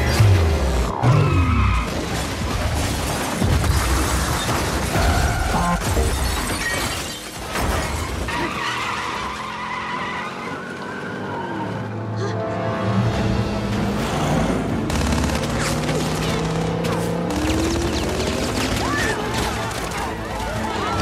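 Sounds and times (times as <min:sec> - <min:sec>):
tyres skidding: 0:04.1 - 0:12.1, 0:13.1 - 0:21.0
car engines running: 0:13.1 - 0:21.0.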